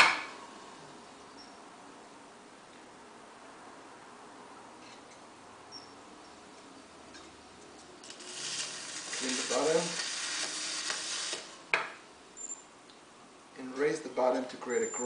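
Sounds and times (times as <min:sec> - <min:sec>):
wet clay hissing scrape: 0:08.0 - 0:11.6.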